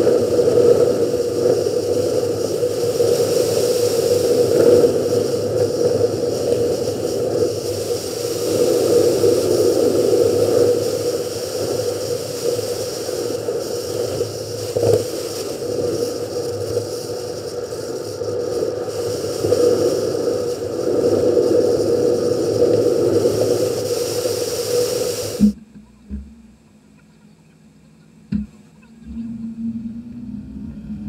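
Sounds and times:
knock: 28.3 - 28.6.

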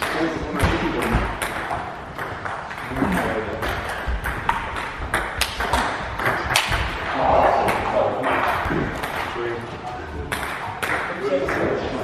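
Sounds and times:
table tennis ball clicking: 1.3 - 6.8.

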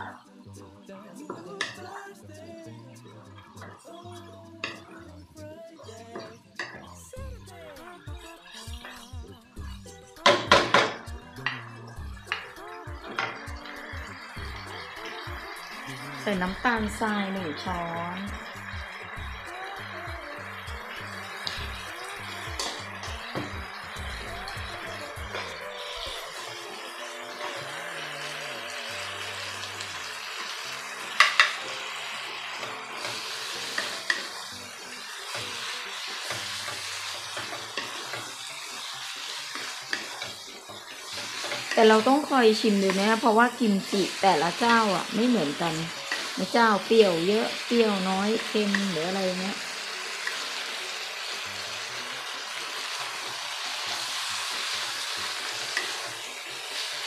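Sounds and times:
food sizzling in a wok: 0.0 - 57.0
spatula scraping a wok: 8.3 - 51.5, 52.4 - 57.0
utensil knocking on pan: 10.3 - 11.0.

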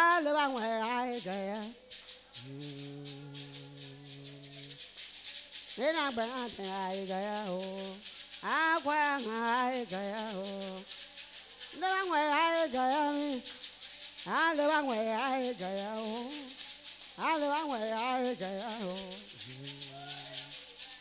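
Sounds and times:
woman singing: 0.0 - 1.8, 5.7 - 10.9, 11.6 - 20.0
gourd rattles shaking: 0.0 - 21.0.

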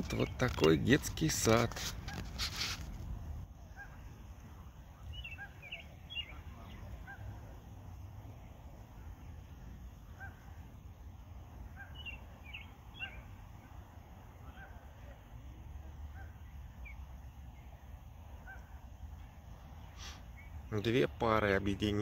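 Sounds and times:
geese honking: 5.1 - 7.6.

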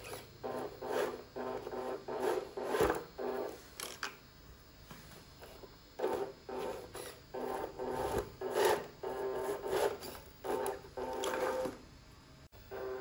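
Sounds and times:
toy truck motor whirring: 0.0 - 4.0, 6.0 - 11.8.

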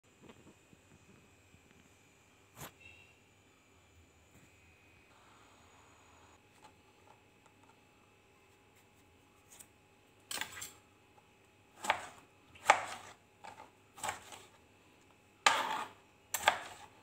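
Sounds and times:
knife chopping on a cutting board: 11.8 - 14.6, 15.4 - 17.0.

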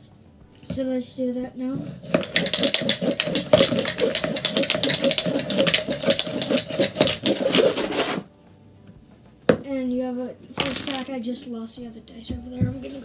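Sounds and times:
dice rattling in a cup: 2.0 - 8.1, 10.6 - 11.2.

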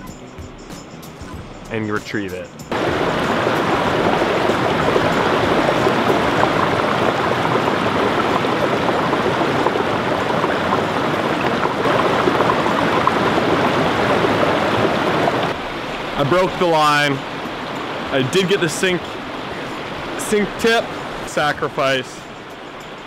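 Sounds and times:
river rushing over rocks: 2.7 - 23.0.

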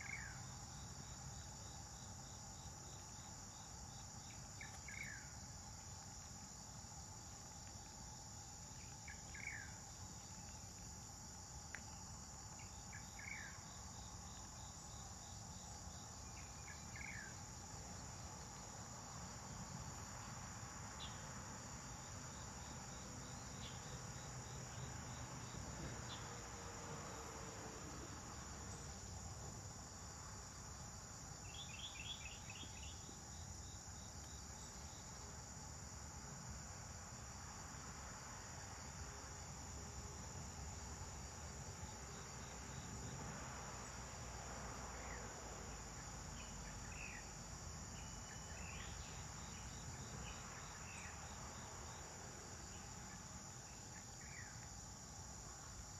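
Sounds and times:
insects trilling: 0.0 - 55.9.

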